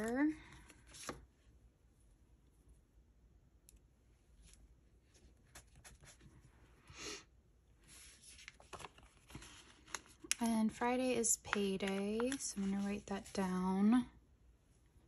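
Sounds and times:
paper rustling: 7.9s - 13.6s.

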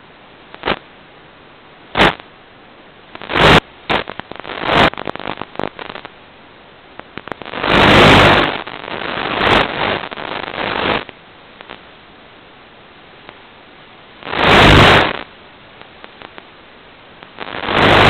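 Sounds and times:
radio static hiss: 0.0s - 18.0s
static crackles: 0.0s - 18.0s
loud rush of noise: 3.2s - 6.1s, 7.2s - 11.1s, 14.2s - 15.3s, 17.4s - 18.0s.

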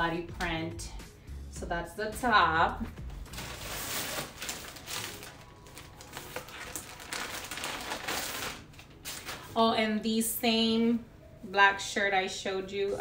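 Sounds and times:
clothing and packaging rustling: 2.6s - 9.9s.

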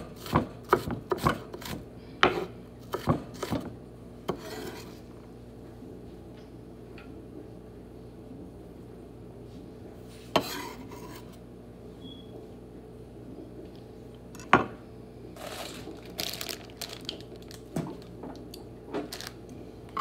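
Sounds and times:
plastic bag crinkling: 15.4s - 19.6s.

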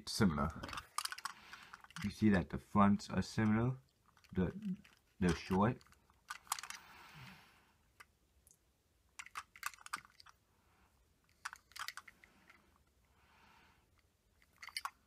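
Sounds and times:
metal toy trucks clicking: 0.5s - 2.3s, 3.3s - 6.8s, 9.2s - 10.3s, 11.3s - 12.6s, 14.4s - 15.0s.

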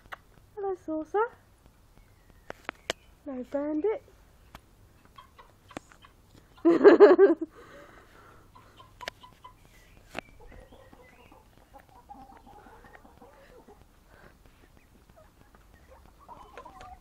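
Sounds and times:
hens clucking: 4.5s - 7.3s, 7.9s - 17.0s.

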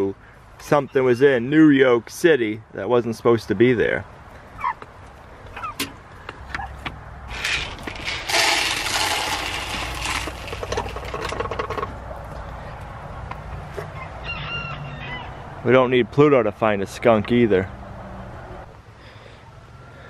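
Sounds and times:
grain pouring into feeder: 7.3s - 11.4s.

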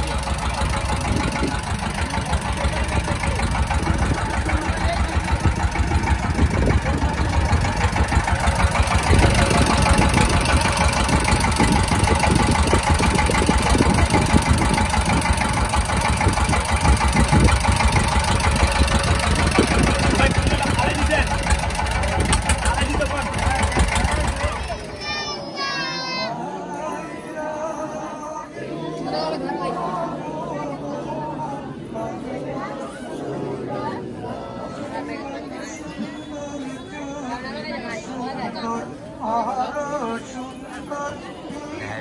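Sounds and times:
boat engine chugging: 0.0s - 25.4s.

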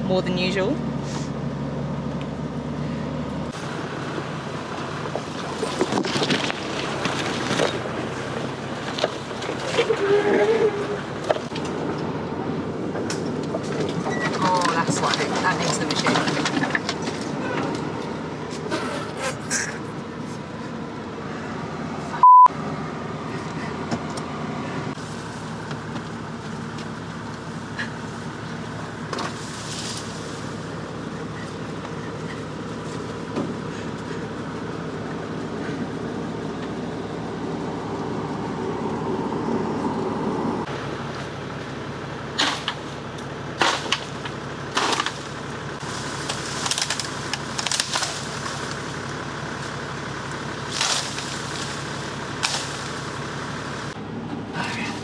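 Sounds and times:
car engine running: 0.0s - 55.0s
short loud beep: 22.2s - 22.5s
bamboo snapping and cracking: 42.4s - 49.8s, 50.6s - 53.2s.

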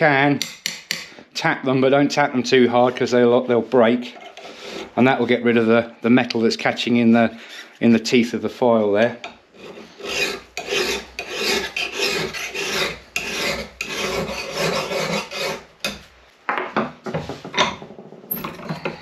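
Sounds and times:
light scrapes and knocks: 2.7s - 5.7s
file rasping on steel: 4.0s - 5.4s, 9.2s - 16.0s.

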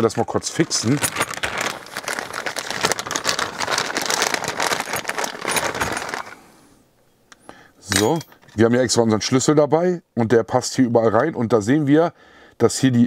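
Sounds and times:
plastic bag crinkling: 0.0s - 6.6s.

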